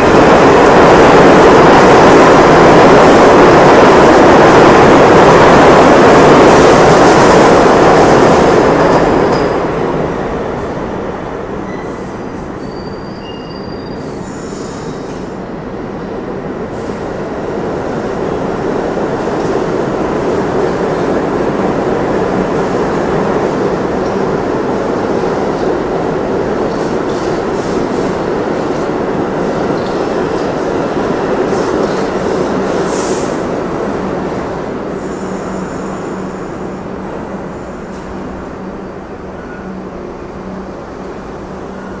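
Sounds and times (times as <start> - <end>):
subway train wheels rumbling: 0.0 - 42.0
faint wheel squeals: 11.7 - 14.5.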